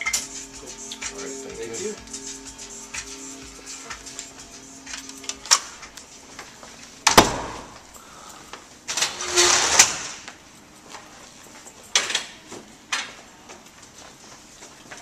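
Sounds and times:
metal cabinet door scraping open: 0:08.9 - 0:10.2.

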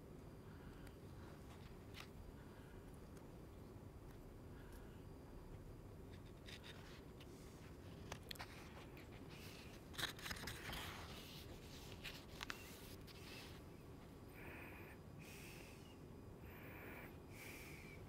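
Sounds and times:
book pages rustling: 0:06.2 - 0:13.7.

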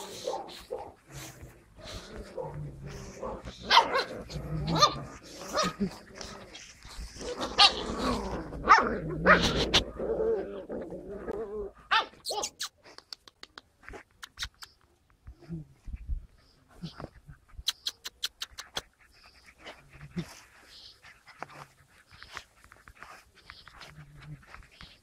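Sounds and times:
puppies yapping and growling: 0:00.0 - 0:12.7.

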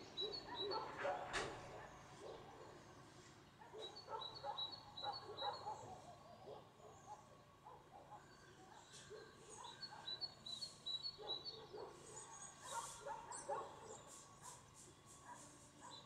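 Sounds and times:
bird chirping: 0:00.0 - 0:00.9, 0:08.7 - 0:14.2
distant dogs barking: 0:00.0 - 0:16.0.

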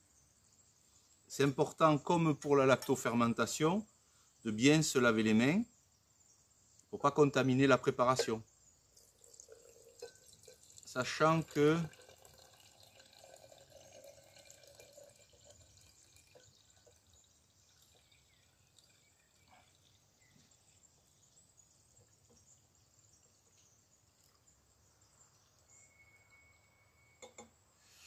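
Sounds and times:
tea trickling into glass jar: 0:01.3 - 0:03.6, 0:06.9 - 0:27.5
soft drips: 0:07.7 - 0:27.4.

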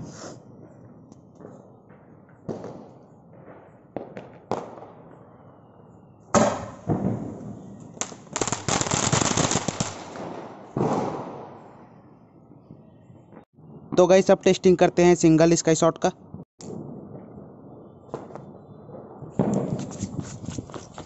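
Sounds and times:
firework pops: 0:06.3 - 0:07.4, 0:19.4 - 0:20.6
firework bangs: 0:06.3 - 0:11.9, 0:16.7 - 0:20.3
firework rapid crackling: 0:08.0 - 0:10.3.

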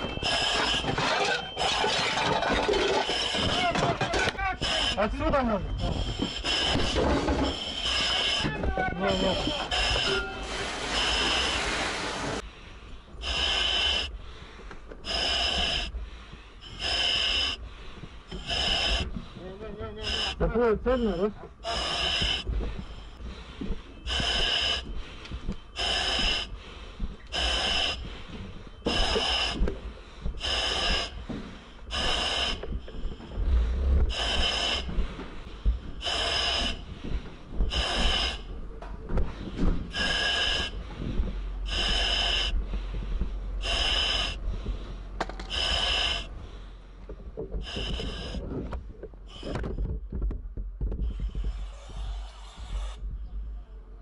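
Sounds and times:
heavy breathing through a mask: 0:00.0 - 0:50.1, 0:50.9 - 0:54.0
regulator hissing: 0:04.4 - 0:12.4.

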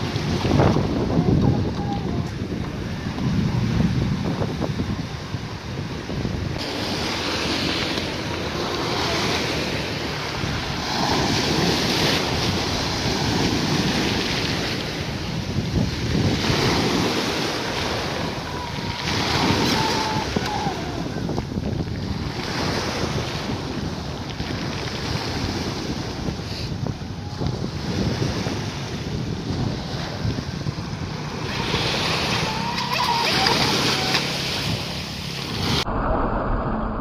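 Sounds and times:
wind buffeting microphone: 0:00.0 - 0:37.0
waves washing up pebble beach: 0:06.6 - 0:30.4, 0:31.0 - 0:35.9.

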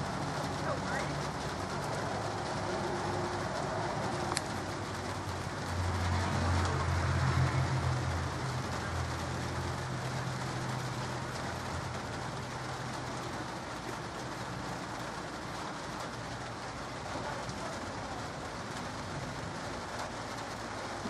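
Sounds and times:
light rain hissing: 0:00.0 - 0:21.0.

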